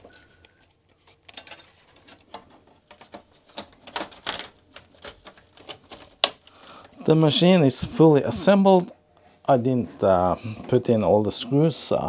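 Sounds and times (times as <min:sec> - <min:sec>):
plastic case parts clicking: 0:01.3 - 0:06.4.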